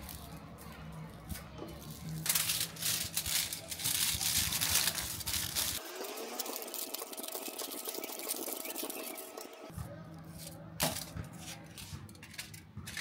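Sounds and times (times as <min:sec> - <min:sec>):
aluminium foil crinkling: 0:00.0 - 0:09.6.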